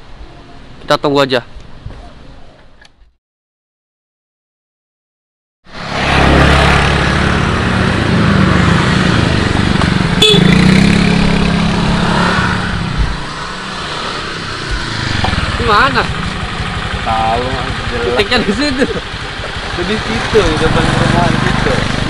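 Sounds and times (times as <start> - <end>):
road and wind noise: 0.0 - 3.2, 5.6 - 22.0
motor scooter engines running: 5.9 - 22.0.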